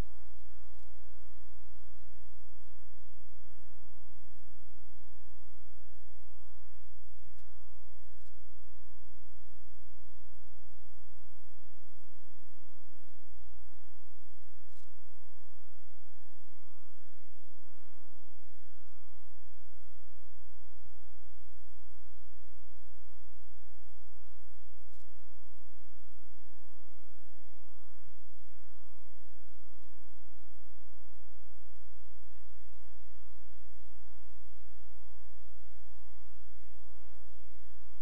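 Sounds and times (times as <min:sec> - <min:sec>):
faint ticks: 0:00.0 - 0:01.0, 0:07.2 - 0:08.5, 0:14.6 - 0:15.0, 0:24.6 - 0:25.3
electrical hum with buzz: 0:00.0 - 0:38.0.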